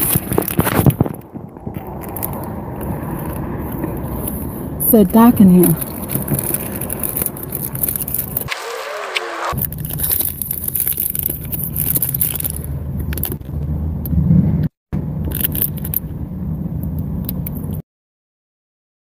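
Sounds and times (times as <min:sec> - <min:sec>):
wrapper crinkling and scraping: 0:00.0 - 0:13.5
car rumble: 0:00.0 - 0:17.8.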